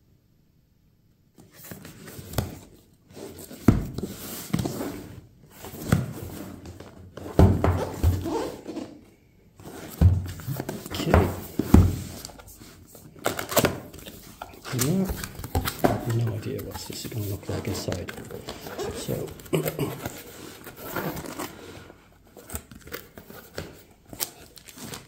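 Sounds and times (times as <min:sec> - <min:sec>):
cardboard box rustling and scraping: 0:01.8 - 0:09.0, 0:09.6 - 0:23.8.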